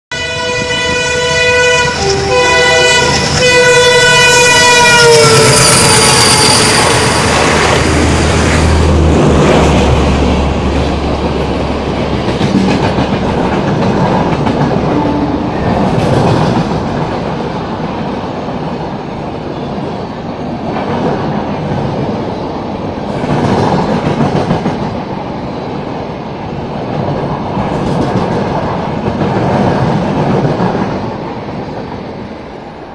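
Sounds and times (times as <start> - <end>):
locomotive horn: 0.1 - 7.7, 14.8 - 15.8
train coaches rumbling and clacking: 0.1 - 32.9.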